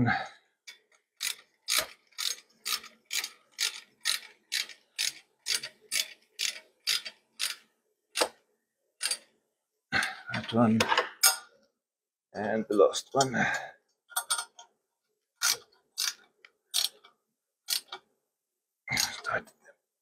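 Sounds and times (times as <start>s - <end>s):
socket ratchet clicking: 1.2s - 7.6s, 17.7s - 18.0s.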